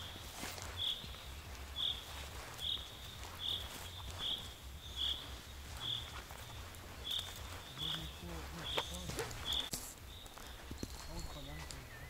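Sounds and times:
small animal chirping: 0:01.8 - 0:11.7.

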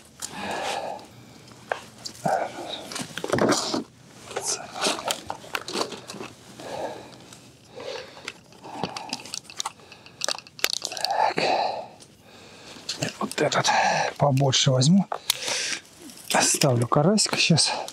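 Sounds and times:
fishing gear clicking: 0:07.7 - 0:11.3.

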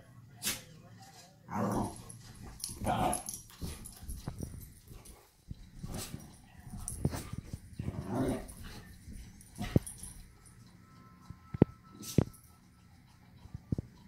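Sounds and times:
dogs scuffling on rug: 0:01.1 - 0:10.2.

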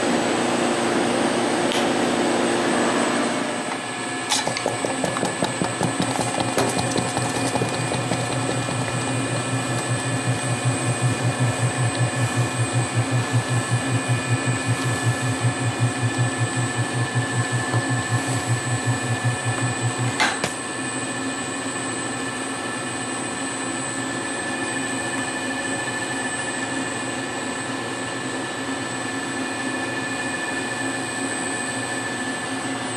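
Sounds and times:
machine hum with rhythmic throb: 0:04.5 - 0:20.4.

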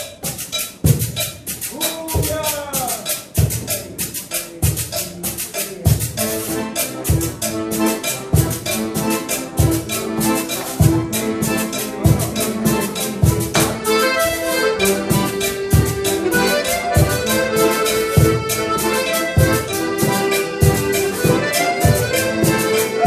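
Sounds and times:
accordions playing: 0:00.0 - 0:23.0
quick high percussion strokes: 0:00.0 - 0:23.0
low drum hits: 0:13.3 - 0:14.2.

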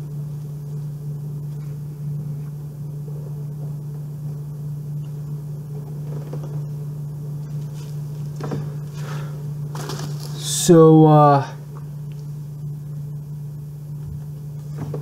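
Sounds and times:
steady low hum: 0:00.0 - 0:15.0
plastic package rustling: 0:07.6 - 0:10.6.

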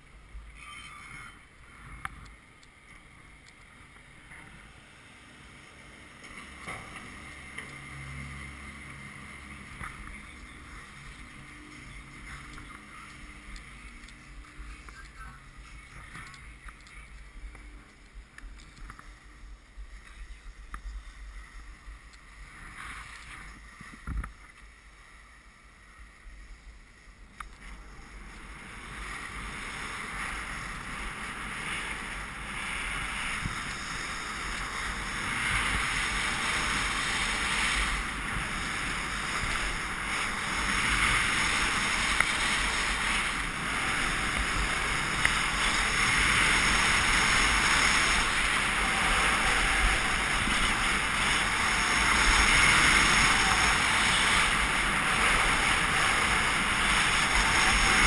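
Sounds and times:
skis scraping over snow: 0:01.0 - 0:58.0
wind on microphone: 0:27.8 - 0:58.0.

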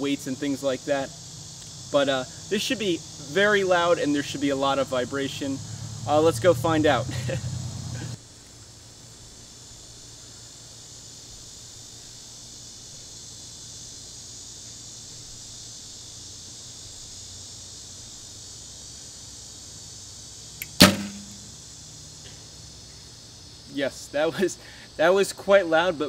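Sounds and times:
insects droning: 0:00.0 - 0:26.0
bow string crack: 0:20.6 - 0:21.6.

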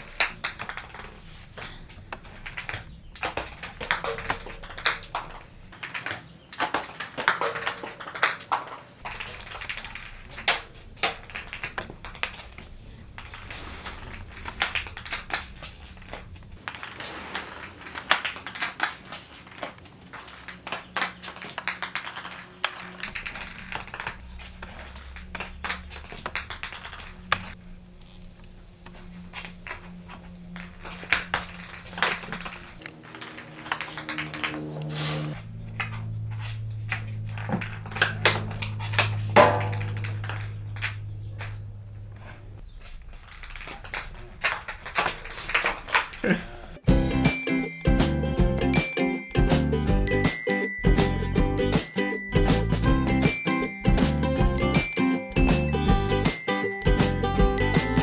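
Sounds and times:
ping pong balls bouncing on tile: 0:00.0 - 0:13.4.

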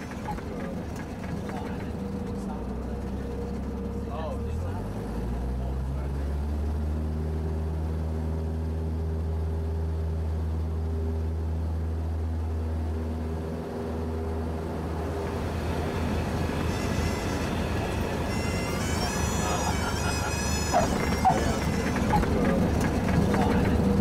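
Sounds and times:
aircraft engine and propeller: 0:00.0 - 0:24.0
music: 0:16.6 - 0:22.3.

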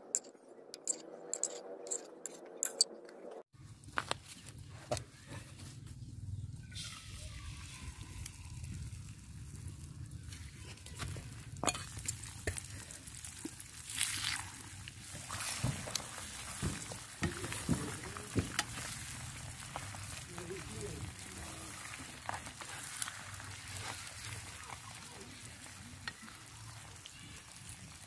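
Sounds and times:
metal spoon clicking: 0:00.2 - 0:02.9
eggs sizzling in oil: 0:06.7 - 0:28.0.

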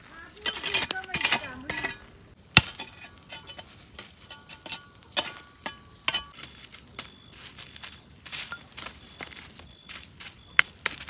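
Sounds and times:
tableware clinking: 0:00.4 - 0:02.1, 0:02.7 - 0:06.4.

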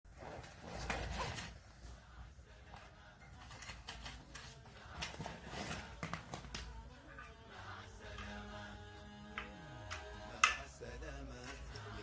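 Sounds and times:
fabric case rustling: 0:00.1 - 0:02.0, 0:03.4 - 0:06.7
zipper being pulled open: 0:00.2 - 0:01.6.

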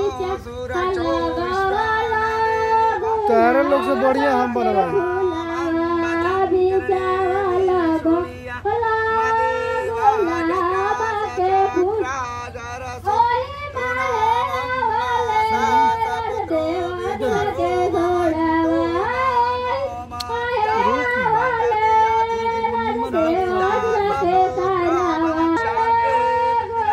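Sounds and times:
women singing slow song: 0:00.0 - 0:12.1, 0:12.9 - 0:26.9
steady low hum: 0:00.0 - 0:26.9.

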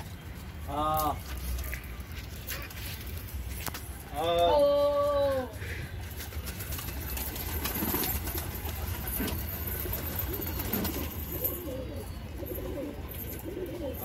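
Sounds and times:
pigeons cooing: 0:07.2 - 0:14.0.

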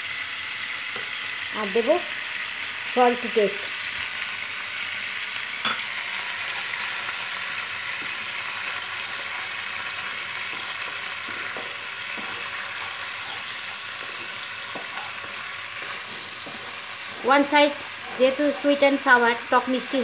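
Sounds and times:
gravy sizzling in a wok: 0:00.0 - 0:20.0
spatula stirring: 0:10.1 - 0:20.0.

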